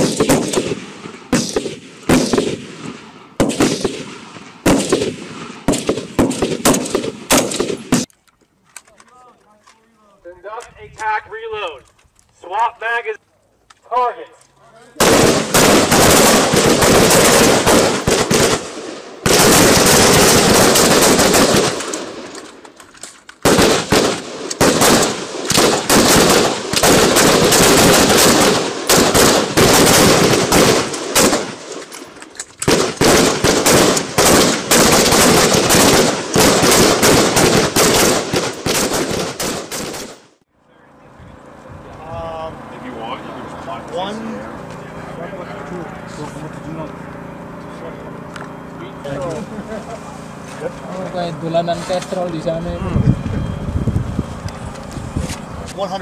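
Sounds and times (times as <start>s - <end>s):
rapid gunfire: 0.0s - 8.1s, 15.0s - 22.3s, 23.4s - 31.8s, 32.6s - 40.4s.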